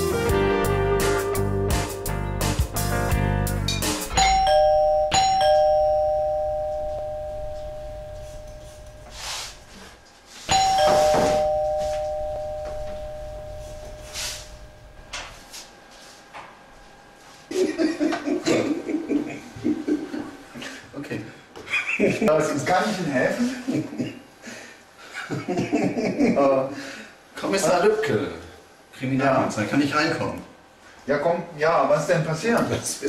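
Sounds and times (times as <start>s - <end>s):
two-tone doorbell chime: 4.1s - 9.5s, 10.5s - 15.0s.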